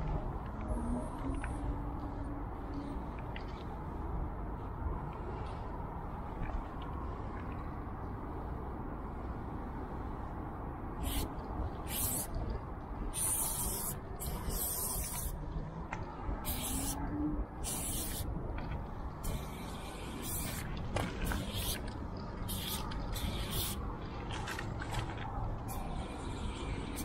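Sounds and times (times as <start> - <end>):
spray paint can hissing: 11.0 - 12.4, 13.1 - 15.4, 16.4 - 17.0, 17.6 - 18.3, 19.2 - 23.8, 25.7 - 27.0.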